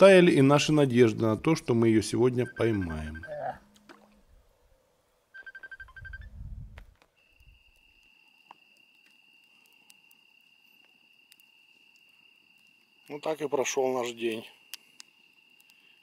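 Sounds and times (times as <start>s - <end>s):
insect trilling: 7.2s - 16.0s.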